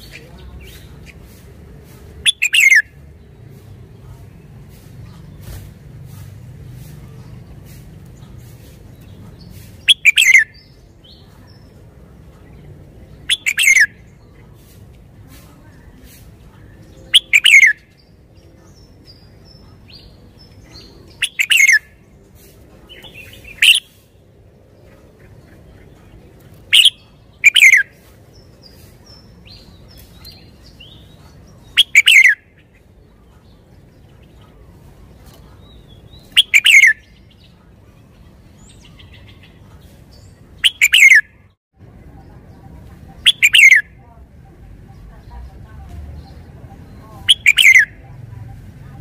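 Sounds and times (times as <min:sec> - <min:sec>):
soft bird chirps: 0:00.0 - 0:05.7, 0:06.7 - 0:49.0
bird singing downward phrases: 0:02.2 - 0:03.0, 0:09.8 - 0:14.5, 0:16.6 - 0:22.2, 0:22.9 - 0:24.0, 0:24.8 - 0:34.6, 0:35.3 - 0:49.0.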